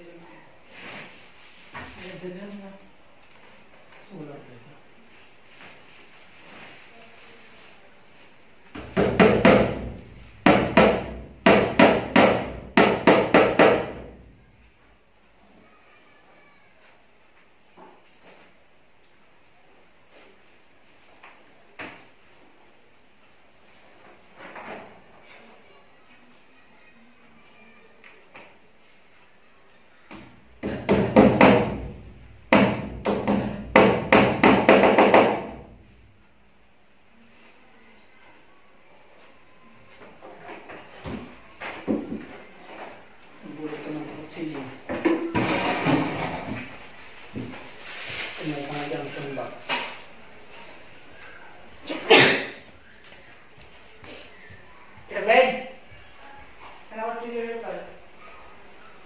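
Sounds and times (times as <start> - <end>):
hammer driving a nail: 8.8 - 14.0, 32.5 - 35.6.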